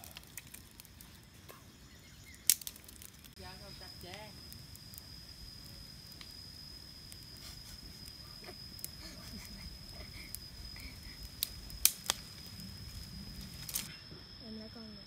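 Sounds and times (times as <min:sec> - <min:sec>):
sharp cracks: 0:00.0 - 0:01.6, 0:02.3 - 0:03.4, 0:08.0 - 0:13.9
high-pitched insect drone: 0:03.3 - 0:15.0.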